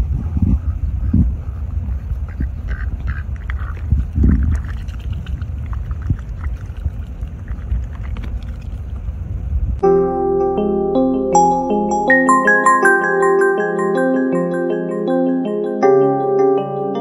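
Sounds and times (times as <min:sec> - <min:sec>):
steady low rumble: 0:00.0 - 0:12.1
duck dabbling in water: 0:02.3 - 0:08.9.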